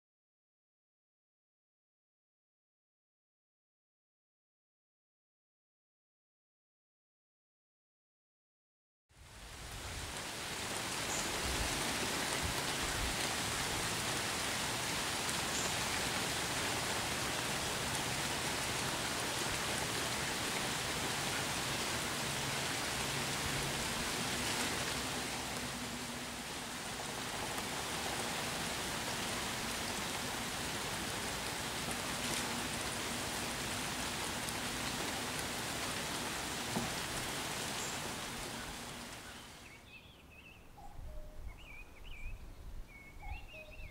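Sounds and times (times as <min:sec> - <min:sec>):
steady rain falling: 0:09.2 - 0:40.0.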